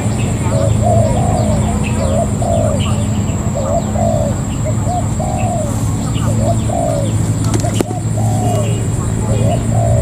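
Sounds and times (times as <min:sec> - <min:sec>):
doves cooing: 0:00.0 - 0:10.0
small birds chirping: 0:00.0 - 0:10.0.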